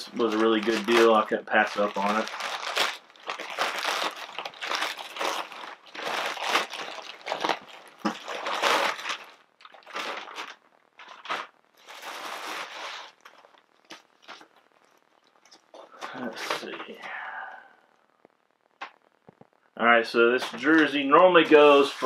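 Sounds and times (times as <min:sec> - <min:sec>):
plastic bag crinkling: 0:00.0 - 0:16.8.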